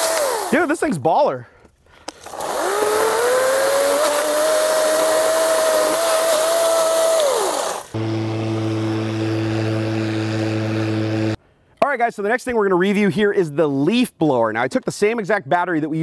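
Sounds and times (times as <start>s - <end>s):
hedge trimmer motor whining: 0.0s - 0.7s, 2.1s - 11.4s.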